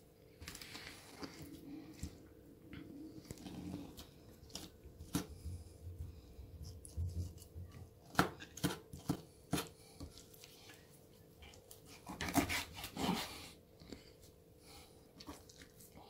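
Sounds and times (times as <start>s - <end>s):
knife cutting through fish: 11.9s - 13.3s.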